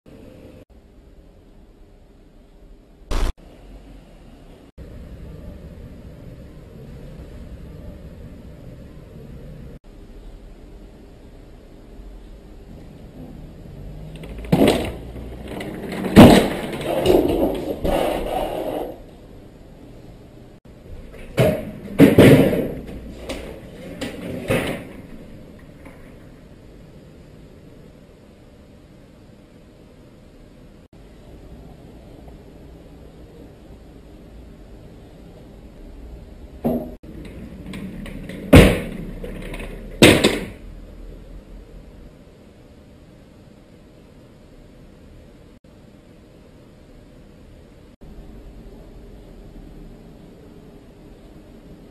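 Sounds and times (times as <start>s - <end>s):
loud sudden bangs: 3.1s - 3.4s
loud bangs and knocks: 21.1s - 25.2s, 36.6s - 40.6s.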